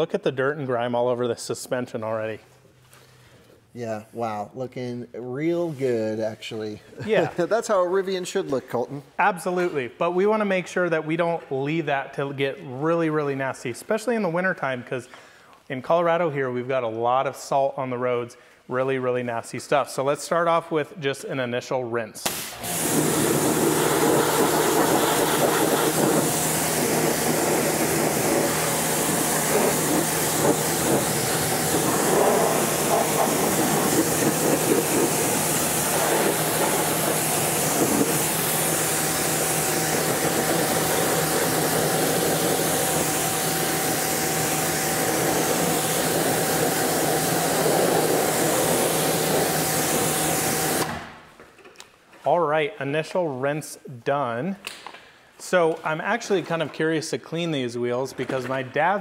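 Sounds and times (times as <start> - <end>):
pressure washer water jet hissing: 22.3 - 51.0
pump humming: 22.4 - 51.0.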